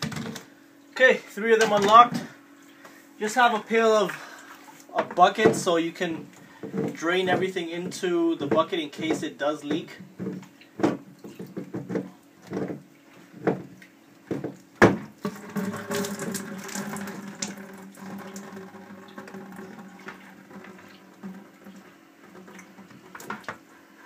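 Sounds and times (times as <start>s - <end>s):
water pouring into plastic bucket: 15.1s - 23.7s.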